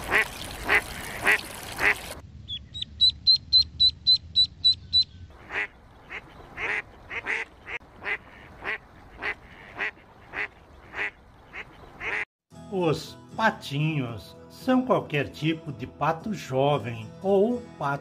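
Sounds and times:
duck quacking: 0.1s - 2.0s, 3.0s - 12.3s
ducklings peeping: 0.1s - 12.2s.

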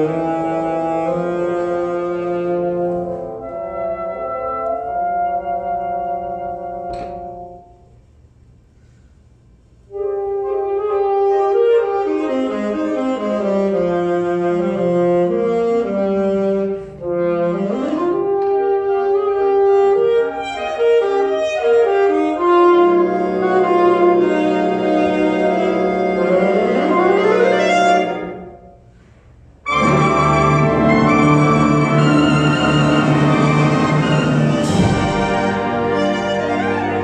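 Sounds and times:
alto saxophone solo: 0.0s - 8.0s, 9.9s - 28.9s, 29.6s - 37.0s
symphonic band chords: 9.9s - 28.6s, 29.6s - 37.0s.

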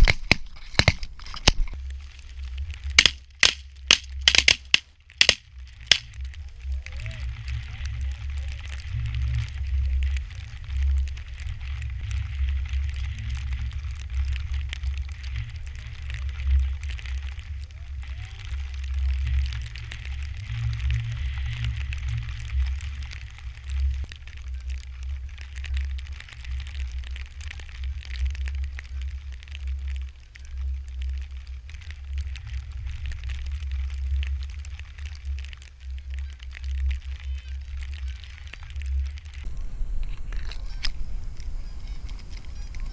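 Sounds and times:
light crackling: 0.0s - 42.9s
wind buffeting microphone: 37.4s - 42.9s.

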